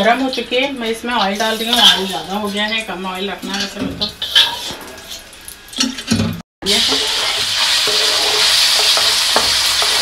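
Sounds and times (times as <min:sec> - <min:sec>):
chicken sizzling in hot oil: 0:06.6 - 0:10.0
spatula pushing food in wok: 0:06.9 - 0:10.0.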